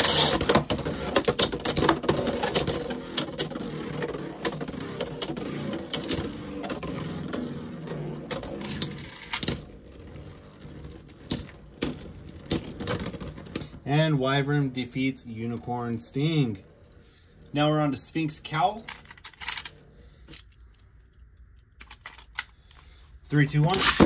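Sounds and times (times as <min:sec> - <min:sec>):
spinning tops whirring rattle: 0:00.0 - 0:13.8, 0:14.5 - 0:20.7
spinning tops clacking together: 0:08.3 - 0:09.6, 0:18.8 - 0:20.6, 0:23.6 - 0:24.0.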